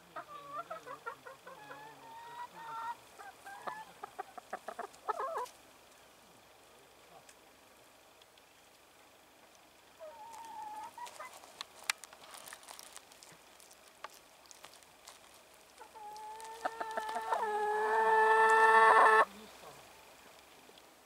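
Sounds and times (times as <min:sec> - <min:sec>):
chicken clucking: 0:00.1 - 0:05.5, 0:10.0 - 0:11.4, 0:15.8 - 0:19.8
chicken drawn-out call: 0:00.1 - 0:05.5, 0:10.0 - 0:11.4, 0:15.8 - 0:19.3.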